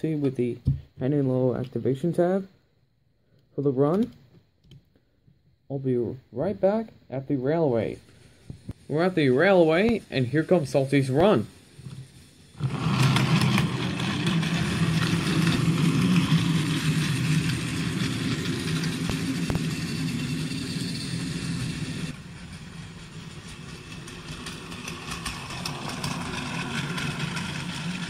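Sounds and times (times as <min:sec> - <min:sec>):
toy train motor whirring: 0:08.0 - 0:28.0.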